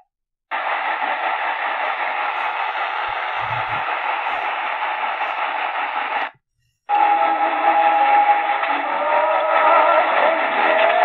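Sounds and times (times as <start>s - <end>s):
radio static hiss: 0.5s - 6.4s.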